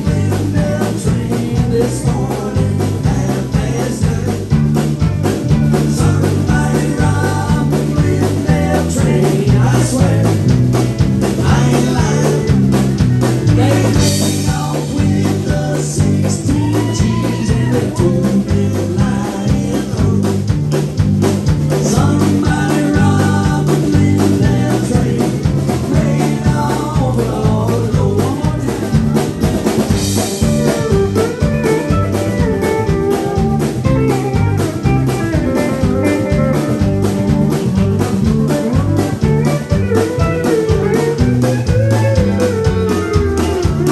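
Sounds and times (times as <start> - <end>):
drum kit: 0.0 - 43.9
electric bass line: 0.0 - 43.9
electric guitar: 0.0 - 43.9.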